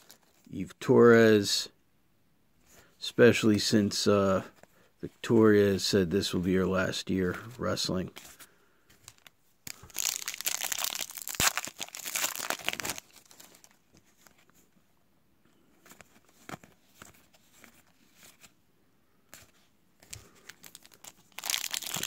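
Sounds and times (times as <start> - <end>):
foil wrappers crinkling: 0.0 - 0.4, 9.1 - 13.8, 20.0 - 22.0
cards flipped through by hand: 15.8 - 18.5.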